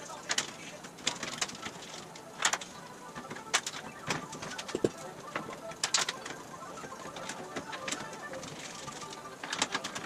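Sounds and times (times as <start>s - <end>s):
metallic taps and clicks: 4.7s - 5.0s.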